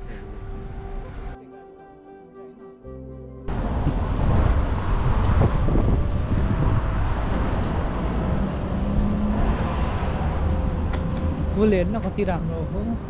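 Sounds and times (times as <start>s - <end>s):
street traffic passing: 0.0s - 1.4s, 3.5s - 13.0s
wind rumbling on microphone: 3.5s - 13.0s.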